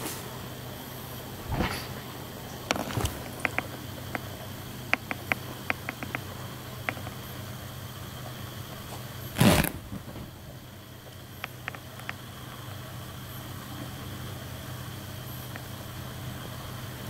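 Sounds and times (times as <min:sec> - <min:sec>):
low steady hum: 0:00.3 - 0:17.0
light sharp clicks and taps: 0:02.7 - 0:04.3, 0:04.9 - 0:07.3, 0:11.4 - 0:12.2.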